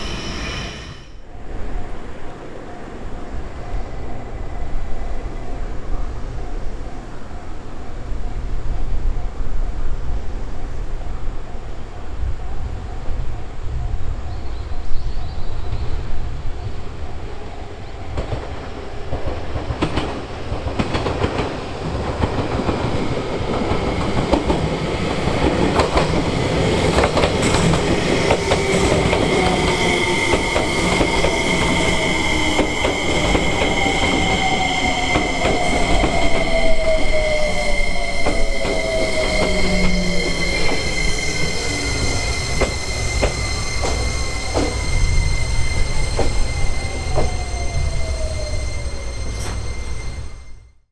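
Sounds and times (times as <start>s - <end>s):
train motor whine: 0.0s - 1.2s, 27.2s - 50.7s
high-pitched squeal: 0.0s - 1.4s, 23.8s - 50.8s
train wheels clicking over rail joints: 42.0s - 45.0s.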